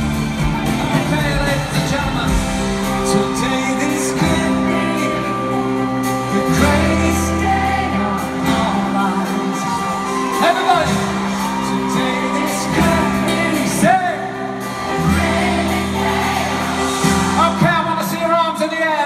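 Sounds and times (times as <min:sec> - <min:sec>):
live pop band playing: 0:00.0 - 0:19.0
man singing: 0:00.5 - 0:14.5.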